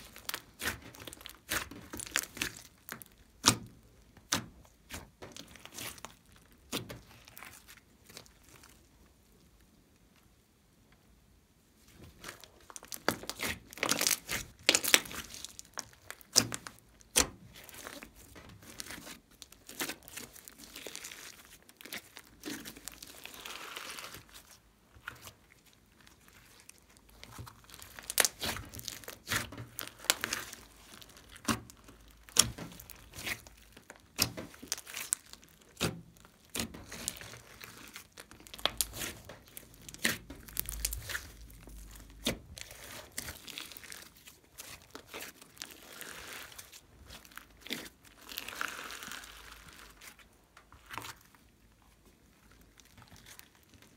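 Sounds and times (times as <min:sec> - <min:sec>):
slime clicking and popping: 0:12.7 - 0:20.2, 0:27.2 - 0:44.0.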